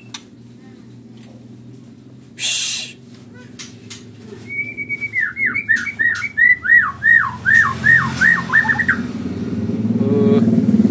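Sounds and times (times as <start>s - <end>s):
bird whistling song: 4.4s - 9.1s.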